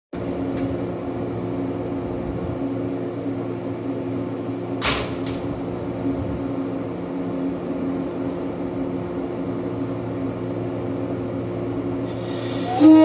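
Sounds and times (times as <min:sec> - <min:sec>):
electric train equipment humming: 0:00.2 - 0:13.0
short air hisses: 0:12.1 - 0:13.0.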